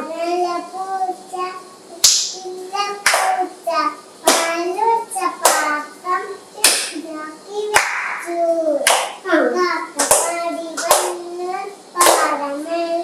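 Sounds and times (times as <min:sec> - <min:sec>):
child singing: 0:00.0 - 0:13.0
people clapping in time: 0:03.0 - 0:03.4, 0:04.3 - 0:04.6, 0:05.4 - 0:05.8, 0:07.8 - 0:08.2, 0:08.8 - 0:09.2, 0:10.0 - 0:11.2, 0:12.0 - 0:12.4.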